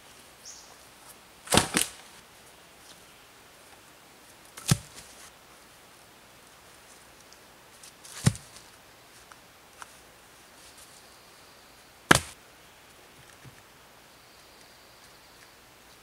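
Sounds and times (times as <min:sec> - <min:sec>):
sharp wooden knocks: 0:12.1 - 0:12.4.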